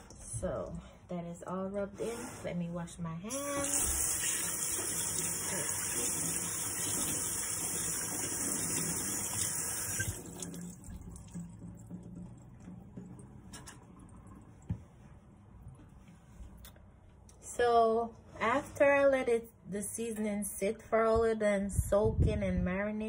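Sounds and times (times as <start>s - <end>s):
faucet running into steel sink: 3.3s - 14.2s.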